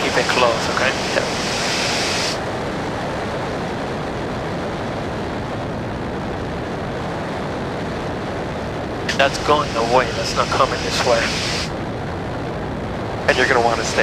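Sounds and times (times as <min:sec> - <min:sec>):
bright hiss: 0:00.0 - 0:02.4, 0:09.1 - 0:11.8
light airplane in flight: 0:00.0 - 0:14.0.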